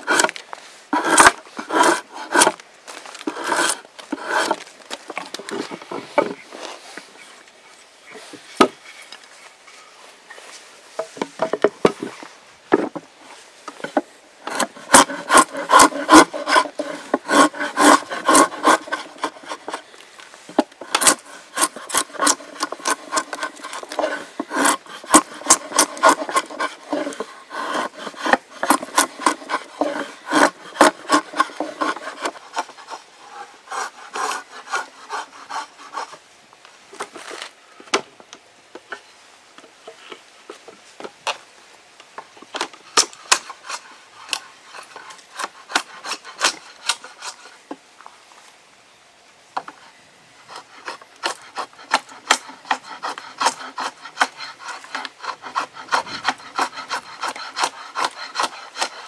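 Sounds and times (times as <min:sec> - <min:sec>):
drawknife shaving wood: 0:00.0 - 0:00.4, 0:01.0 - 0:05.8, 0:14.5 - 0:19.9, 0:20.5 - 0:36.2, 0:43.3 - 0:47.5, 0:50.5 - 0:59.0.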